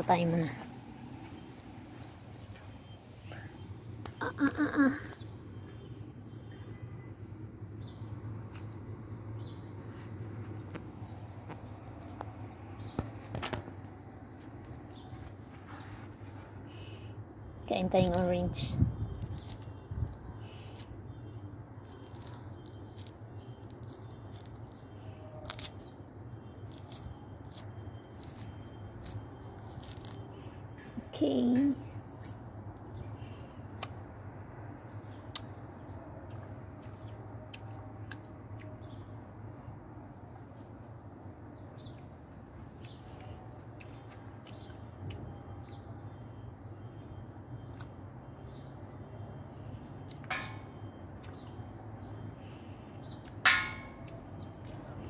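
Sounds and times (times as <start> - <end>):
small birds chirping: 0.0 - 55.0
orange peel tearing: 19.0 - 30.4.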